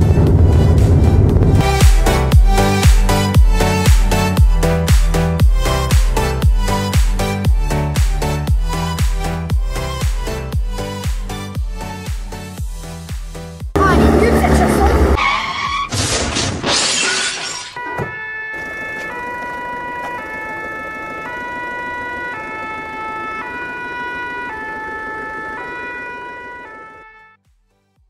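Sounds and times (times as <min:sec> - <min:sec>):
two-tone emergency siren: 0:17.8 - 0:27.4.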